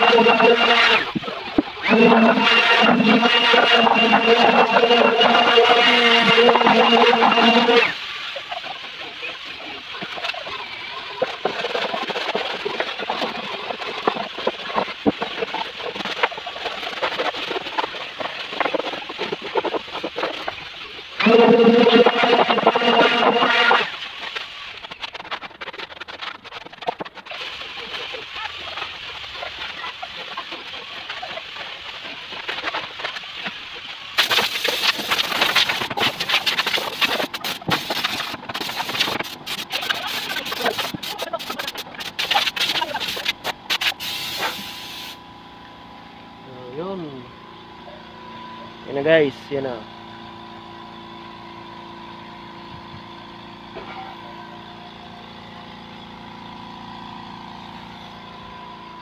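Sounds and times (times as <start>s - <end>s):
mechanical motor hum: 0.0s - 59.0s
compressed air hissing from blow gun: 34.2s - 45.2s.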